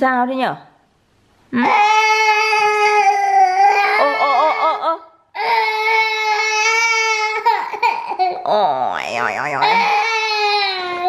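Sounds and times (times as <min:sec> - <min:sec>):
toddler crying: 0:01.6 - 0:04.8, 0:05.4 - 0:08.4, 0:09.6 - 0:11.0.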